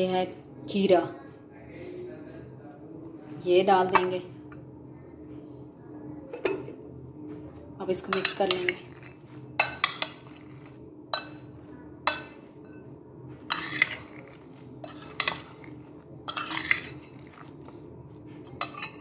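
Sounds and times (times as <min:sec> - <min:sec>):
faint low hum: 0:00.0 - 0:19.0
metal spoon scraping a bowl: 0:08.0 - 0:19.0.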